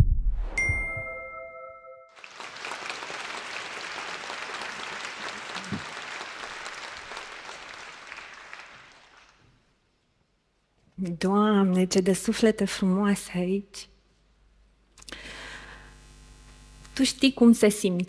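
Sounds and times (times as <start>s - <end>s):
chime chord: 0.6s - 2.2s
audience applauding: 2.2s - 9.6s.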